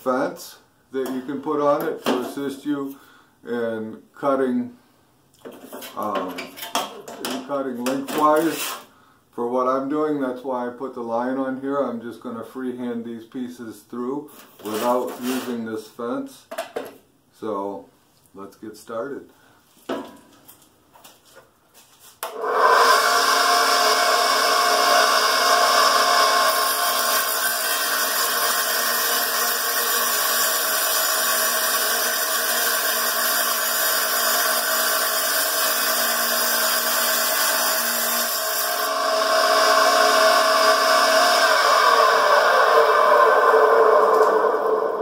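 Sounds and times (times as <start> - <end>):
saw blade cutting tile: 7.8 - 8.9, 22.3 - 45.0
tile saw motor running: 22.3 - 45.0.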